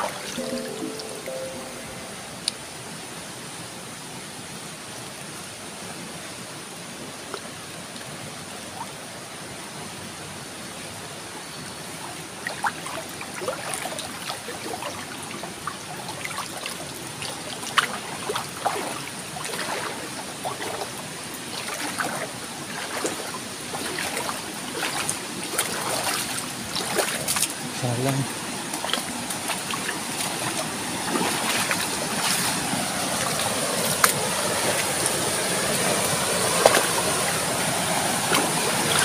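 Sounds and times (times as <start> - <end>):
water splashes and gurgles: 0.0 - 2.6, 10.7 - 39.0
stream flowing water: 0.0 - 39.0.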